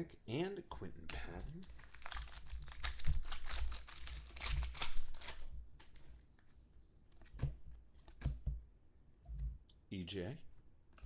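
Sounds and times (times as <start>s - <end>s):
wrapper tearing and crinkling: 1.5s - 5.5s.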